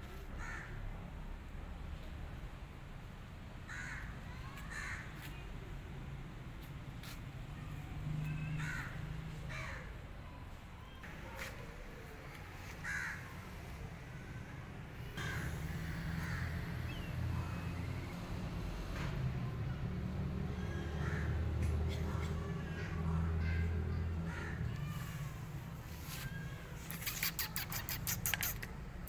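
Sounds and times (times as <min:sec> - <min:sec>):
crows cawing: 0:00.3 - 0:00.8, 0:03.7 - 0:05.3, 0:08.5 - 0:09.9, 0:12.6 - 0:13.4, 0:15.1 - 0:17.0, 0:20.7 - 0:21.4.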